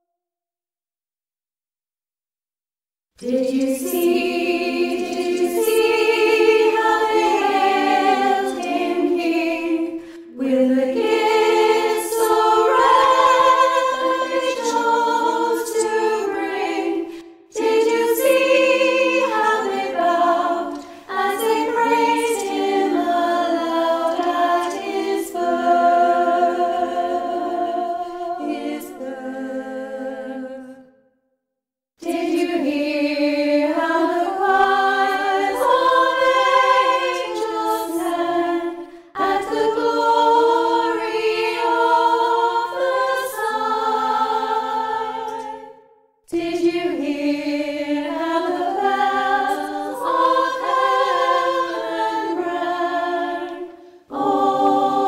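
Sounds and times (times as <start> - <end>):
women's choir singing a cappella: 3.2 - 31.0, 32.0 - 55.0.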